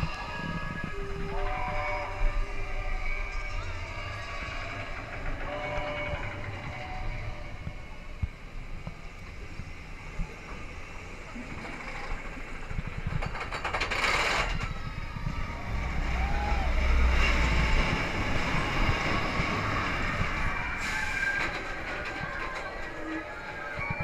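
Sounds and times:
roller coaster wheels rumbling: 0.0s - 24.0s.

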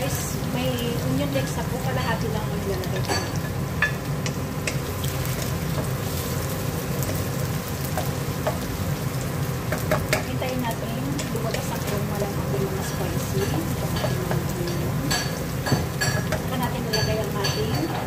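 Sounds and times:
vegetables sizzling in oil: 0.0s - 18.0s
spatula scraping and tapping wok: 2.9s - 8.8s, 9.6s - 10.3s.

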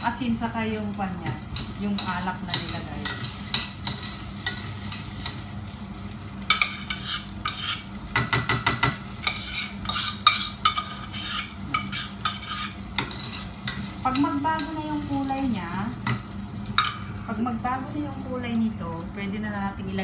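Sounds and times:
light sizzle: 0.0s - 20.0s
rice stirred and scraped in pan: 1.4s - 5.6s, 6.4s - 15.2s.

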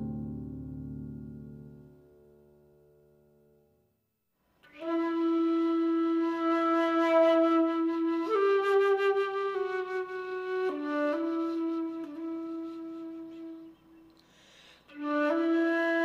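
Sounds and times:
solo flute held notes: 4.7s - 14.1s, 14.9s - 16.0s.

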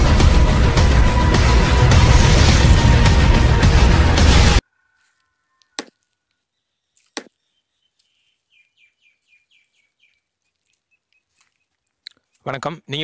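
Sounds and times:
logo intro music: 0.0s - 4.6s.

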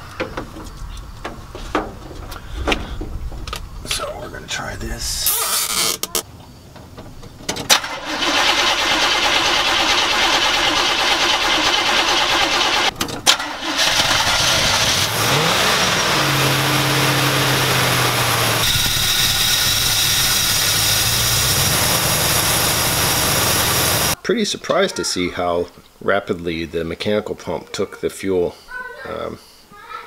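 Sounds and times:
engine cranking: 7.7s - 24.2s
pickup engine running: 7.7s - 24.2s.

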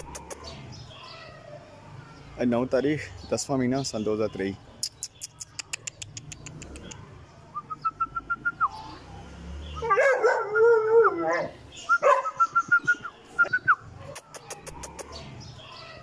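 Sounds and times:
dog howling: 9.8s - 12.2s.

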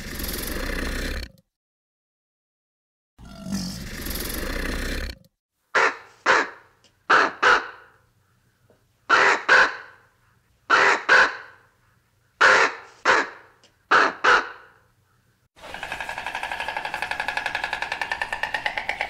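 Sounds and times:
raven croaking: 3.2s - 5.2s, 5.8s - 8.0s, 9.1s - 10.1s, 10.7s - 11.8s, 12.4s - 14.8s, 15.6s - 19.0s.

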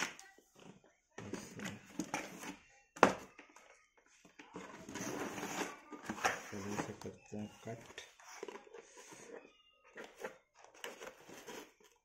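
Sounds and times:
packaging rustling and scraping: 4.2s - 12.0s.

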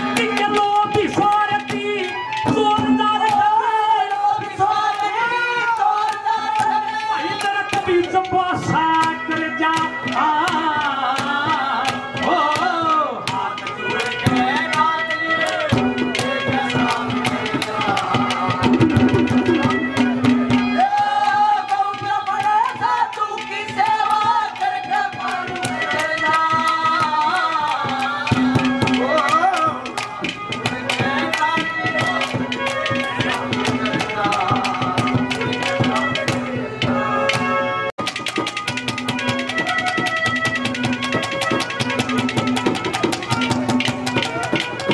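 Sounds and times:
hand drums fast rhythm: 6.0s - 37.0s, 38.0s - 44.9s.

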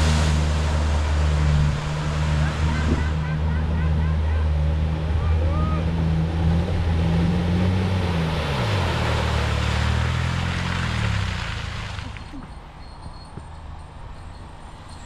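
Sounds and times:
engine running hard: 0.0s - 12.5s
tyres churning wet mud: 0.0s - 13.2s.

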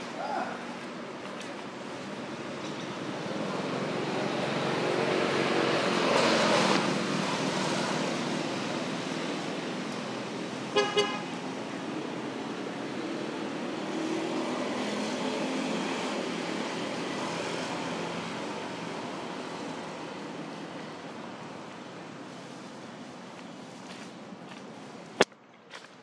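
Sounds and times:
road noise: 0.0s - 26.0s
vehicle horn beeps: 10.8s - 11.2s.

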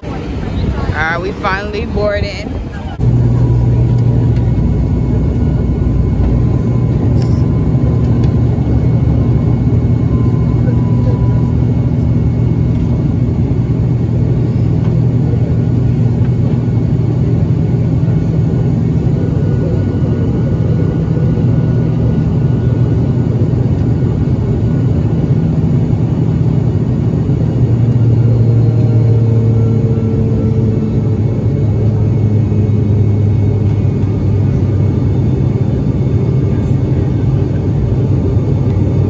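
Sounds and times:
airplane engines droning in cabin: 0.0s - 39.0s.

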